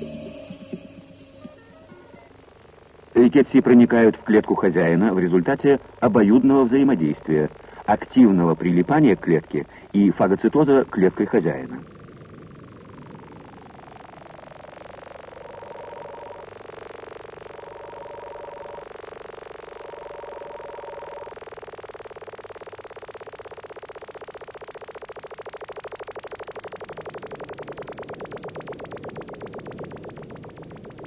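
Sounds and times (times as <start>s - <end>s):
short high electronic notes: 0.0s - 2.4s
electronic drone: 0.0s - 31.0s
fast pulsing warble: 0.0s - 31.0s.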